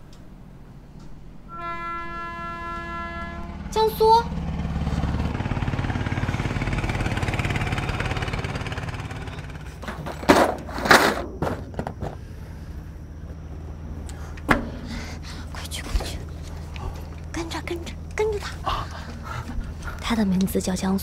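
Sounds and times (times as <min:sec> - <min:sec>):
boat engine running: 0:02.8 - 0:09.8.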